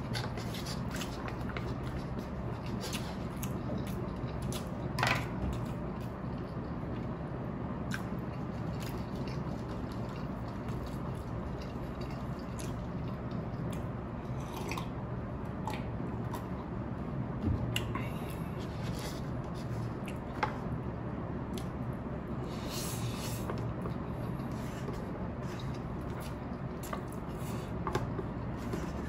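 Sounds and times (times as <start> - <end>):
chewing with wet clicks: 0.9 - 7.2, 7.8 - 16.6, 20.0 - 20.4, 21.5 - 21.8.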